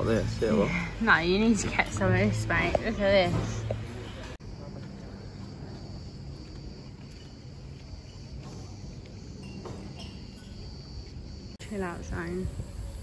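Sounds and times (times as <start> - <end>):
high-pitched insect chorus: 4.1 - 13.0.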